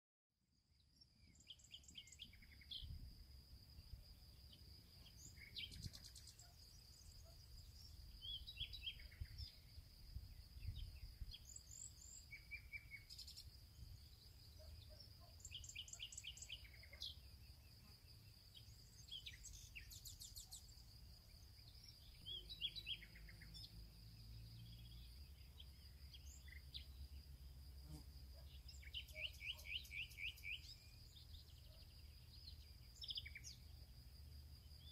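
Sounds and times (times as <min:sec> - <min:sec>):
birds chirping: 0:04.3 - 0:09.8, 0:10.4 - 0:27.0, 0:28.4 - 0:33.7.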